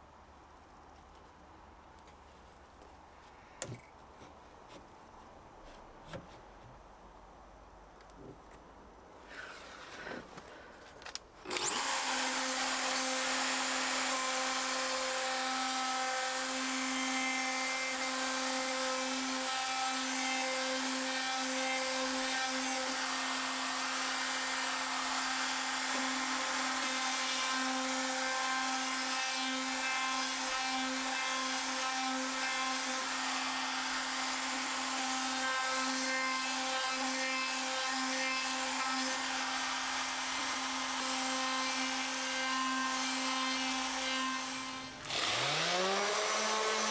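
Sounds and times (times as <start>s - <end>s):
router spinning with steady whine: 11.4s - 46.9s.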